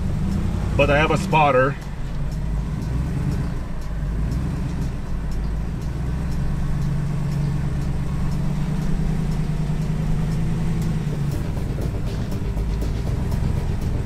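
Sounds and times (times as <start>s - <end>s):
truck engine running at low revs: 0.0s - 14.0s.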